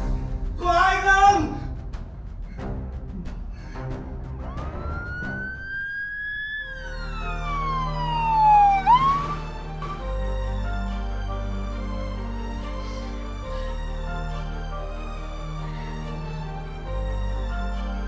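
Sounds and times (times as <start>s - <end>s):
background music: 0.0s - 18.0s
deep low drone: 1.7s - 18.0s
ambulance siren wailing: 4.4s - 10.0s.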